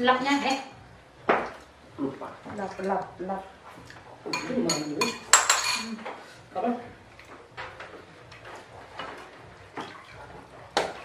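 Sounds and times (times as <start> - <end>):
tableware clattering: 4.2 - 6.2.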